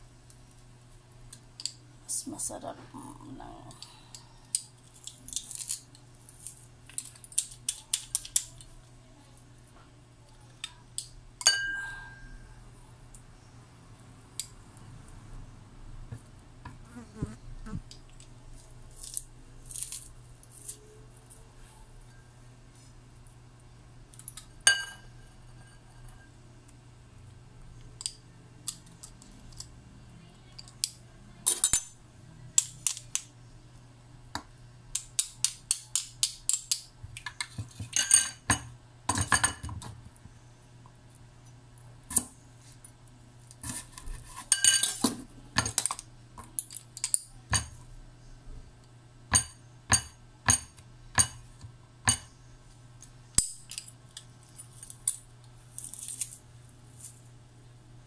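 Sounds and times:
faint low hum: 0.0s - 35.1s
knife scraping: 43.6s - 45.0s.

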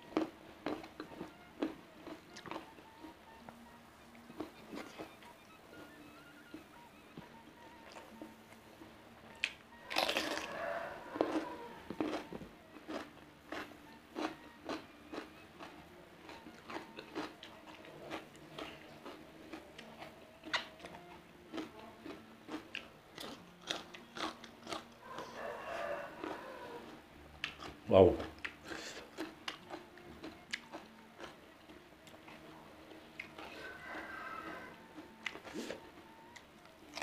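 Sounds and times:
wet chewing clicks: 0.1s - 8.4s, 11.2s - 37.0s
crunching cucumber bites: 0.2s - 2.7s, 9.4s - 10.6s, 11.2s - 24.9s, 26.2s - 31.4s.

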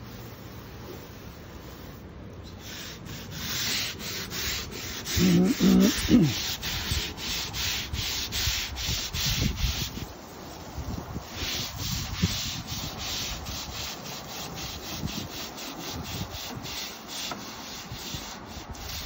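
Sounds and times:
brush scrubbing wet decking: 0.0s - 19.0s.

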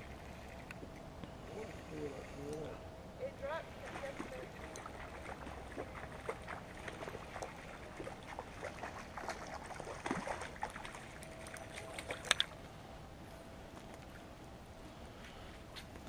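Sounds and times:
fish splashing at surface: 3.8s - 12.6s.

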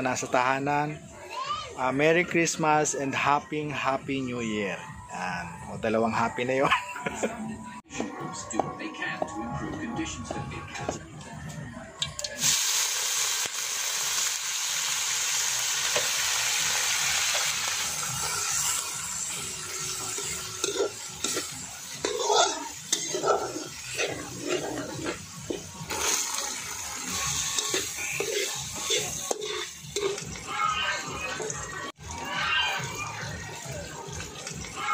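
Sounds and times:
food sizzling in a wok: 12.3s - 34.9s
spatula scraping a wok: 15.8s - 31.7s.

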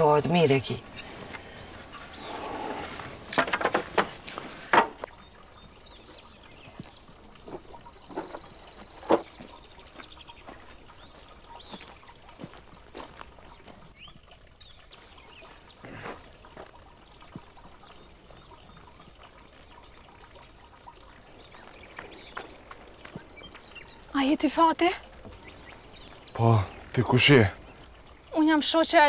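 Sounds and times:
faint bird chirps: 5.1s - 12.6s
footsteps on dirt path: 6.6s - 14.2s, 15.0s - 17.5s, 21.3s - 26.8s.

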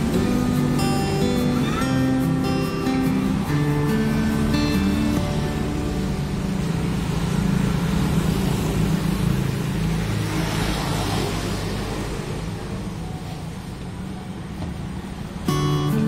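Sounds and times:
traffic rumble: 0.0s - 16.0s
vehicle passing by: 0.0s - 16.0s.

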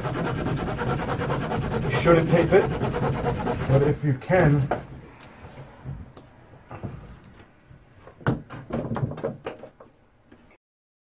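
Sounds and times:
plastic knocking against wallboard: 8.1s - 9.9s.

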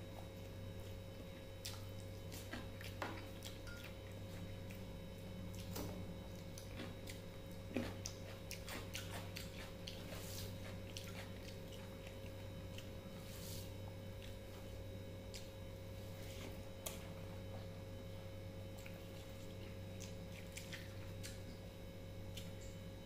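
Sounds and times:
steady low hum: 0.0s - 23.0s
fingers mashing rice: 6.4s - 13.6s.

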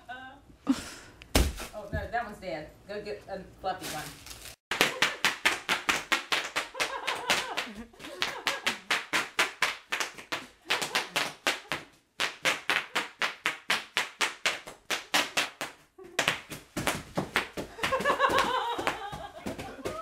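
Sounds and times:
bubble wrap popping: 1.3s - 1.9s, 3.8s - 6.8s.

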